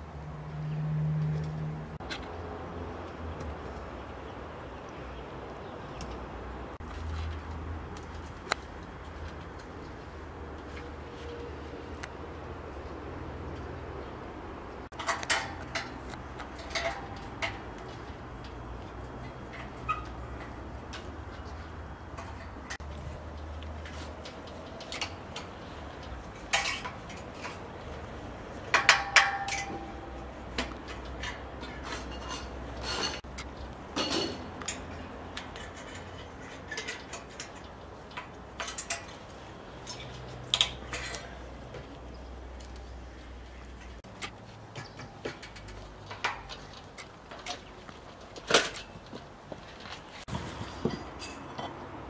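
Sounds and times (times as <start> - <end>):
pliers and wire clicking on metal: 14.9 - 28.0, 28.6 - 43.0, 43.6 - 49.2.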